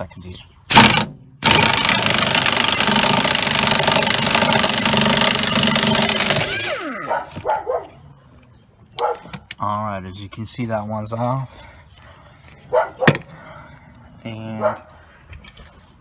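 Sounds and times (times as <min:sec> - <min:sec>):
impact wrench rattling: 0:00.7 - 0:07.0.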